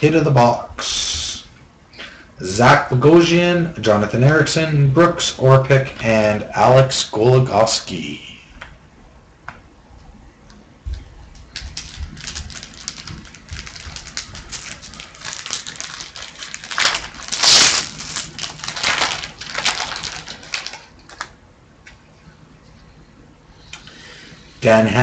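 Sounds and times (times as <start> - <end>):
foil wrapper crinkling and tearing: 11.5 - 21.4.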